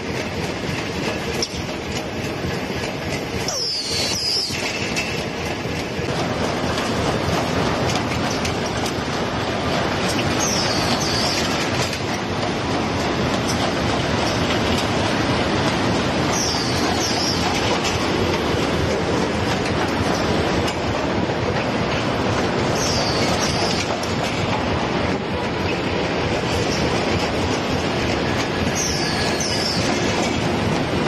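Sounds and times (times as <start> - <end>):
short high-pitched squeals: 3.5 - 4.8.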